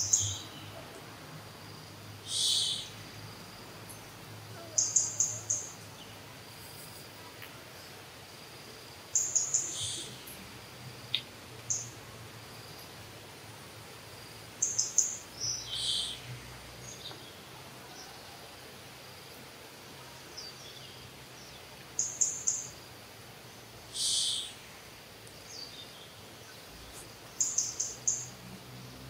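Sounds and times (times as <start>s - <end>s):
bird chirping: 0.0s - 1.0s, 1.8s - 6.4s, 9.1s - 10.4s, 11.1s - 12.0s, 14.6s - 18.3s, 20.3s - 22.8s, 23.9s - 24.6s, 25.4s - 28.9s.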